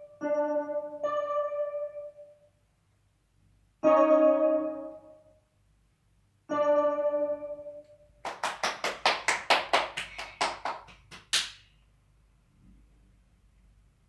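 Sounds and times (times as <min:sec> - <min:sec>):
electronic keyboard note: 0:00.0 - 0:02.5, 0:03.8 - 0:05.4, 0:06.5 - 0:08.1
hands clapping: 0:08.2 - 0:11.7.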